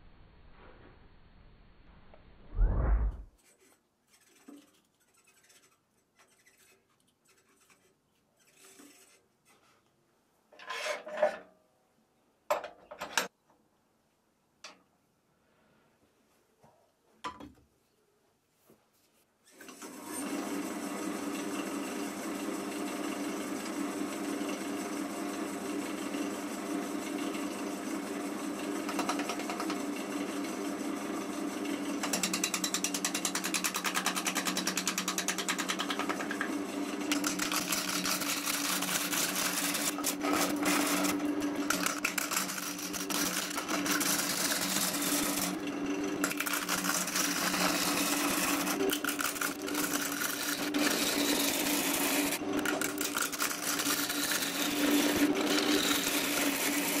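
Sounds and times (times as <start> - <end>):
gouge scraping through wood: 3.4 - 9.8, 37.1 - 45.6, 46.2 - 57.0
lathe motor hum: 35.5 - 57.0.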